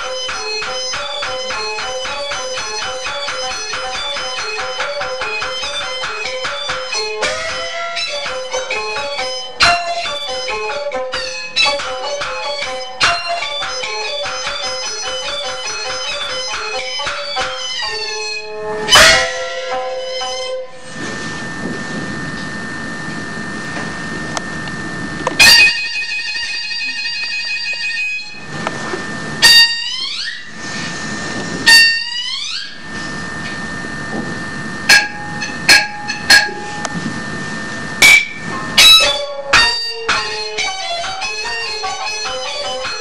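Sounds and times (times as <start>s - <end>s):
gongs and cymbals striking: 0.0s - 43.0s
string instruments: 38.0s - 43.0s.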